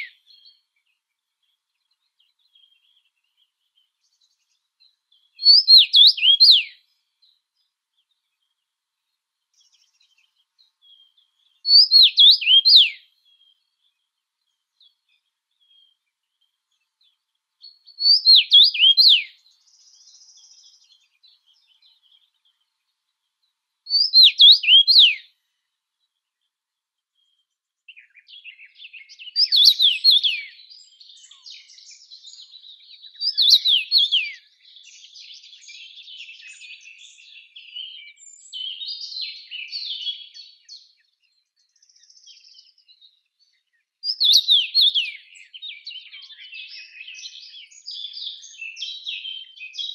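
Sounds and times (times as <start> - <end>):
birds twittering: 0.0 - 8.6, 9.5 - 26.5, 27.1 - 49.9
songbird phrases of descending notes: 44.1 - 49.9.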